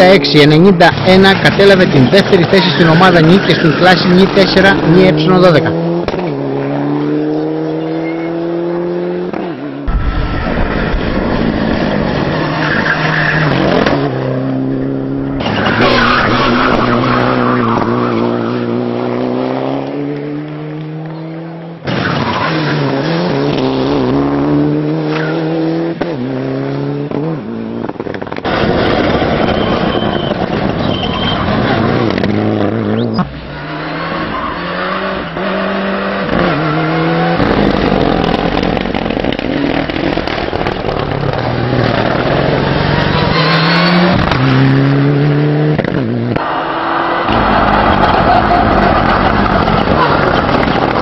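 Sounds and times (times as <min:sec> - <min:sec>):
car engine revving hard: 0:04.3 - 0:09.4, 0:22.4 - 0:30.0, 0:31.4 - 0:51.0.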